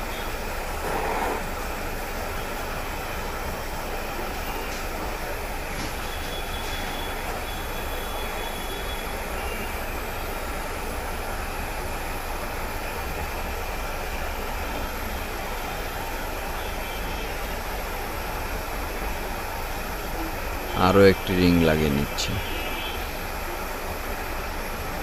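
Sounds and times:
torch flame rushing: 0:00.6 - 0:02.2.

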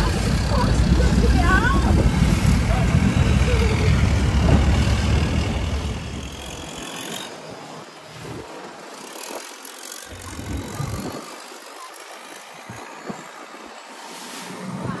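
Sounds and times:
wind noise: 0:00.0 - 0:06.9, 0:10.1 - 0:11.4
boat engine running: 0:00.0 - 0:13.9
rushing water: 0:00.0 - 0:15.0.

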